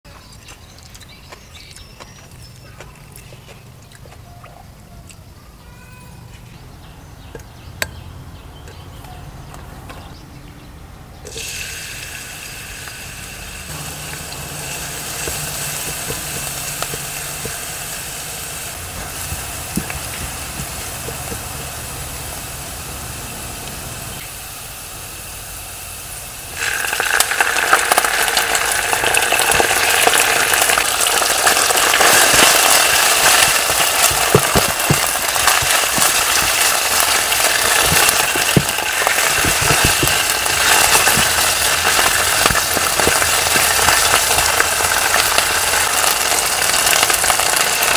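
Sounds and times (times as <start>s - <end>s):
chicken frying in pan: 11.2s - 47.9s
garlic sizzling in oil: 11.2s - 47.9s
spatula stirring in pan: 13.8s - 22.6s.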